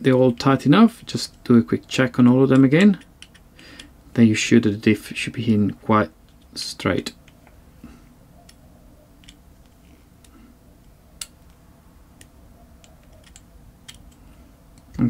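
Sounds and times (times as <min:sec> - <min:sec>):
hex driver clicking on screws: 0:02.5 - 0:03.9, 0:12.2 - 0:15.0.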